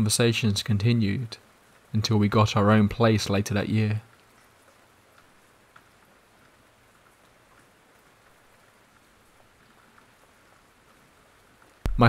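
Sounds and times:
faint steady rain: 0:00.0 - 0:12.0
small drop ticks: 0:04.1 - 0:11.0.

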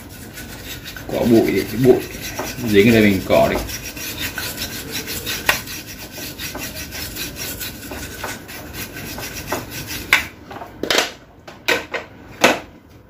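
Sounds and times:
brush scrubbing circuit board: 0:00.0 - 0:10.2.

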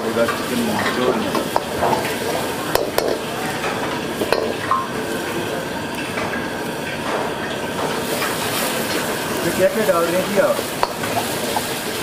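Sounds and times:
garlic sizzling in oil: 0:00.0 - 0:12.0.

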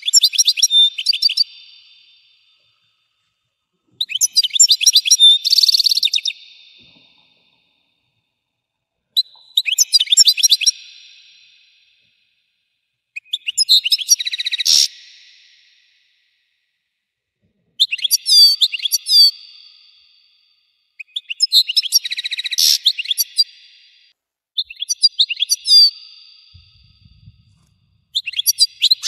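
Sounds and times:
goldfinch singing: 0:00.0 - 0:02.4, 0:04.0 - 0:07.2, 0:09.2 - 0:11.2, 0:24.6 - 0:26.7, 0:28.1 - 0:29.0.

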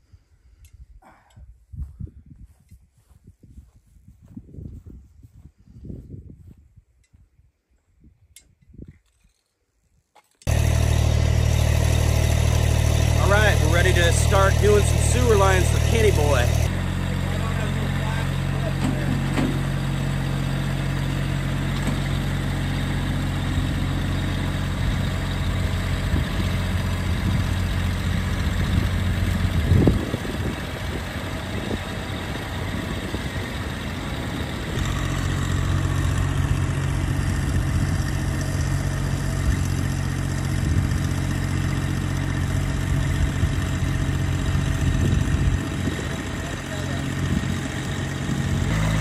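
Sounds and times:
diesel tractor engine running: 0:10.4 - 0:49.0
loud clunk: 0:18.8 - 0:19.7.

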